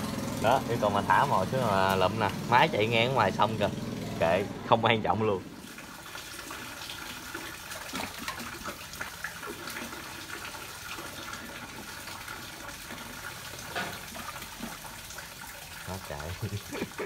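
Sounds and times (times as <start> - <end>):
small sharp splashes: 5.6 - 11.8.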